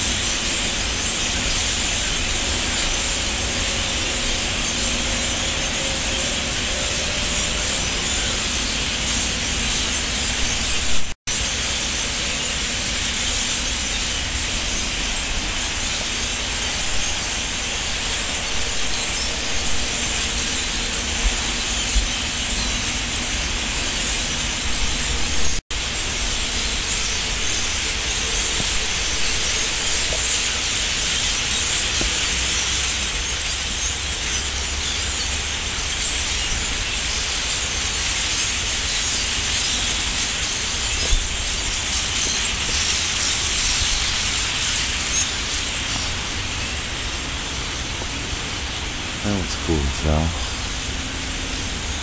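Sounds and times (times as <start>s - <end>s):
flock of songbirds chirping: 0.0s - 52.0s.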